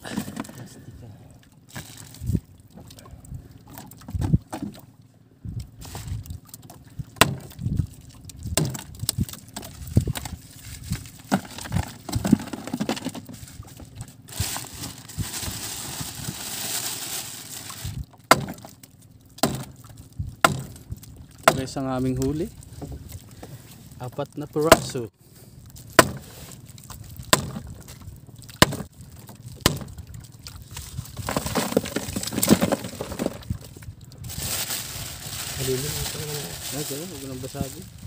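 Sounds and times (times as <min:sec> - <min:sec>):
knocks and clatters of handling: 0:09.5 - 0:14.9, 0:31.1 - 0:33.8
plastic rustling: 0:10.0 - 0:18.1, 0:31.0 - 0:38.0.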